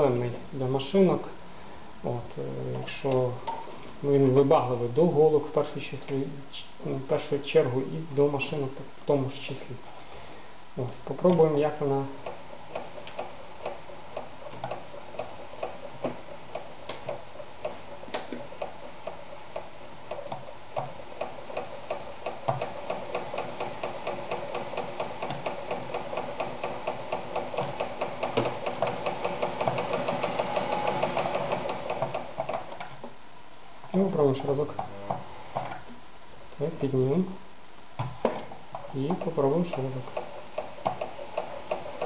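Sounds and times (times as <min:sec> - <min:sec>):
sewing machine clatter: 0:21.2 - 0:32.7, 0:39.2 - 0:42.0.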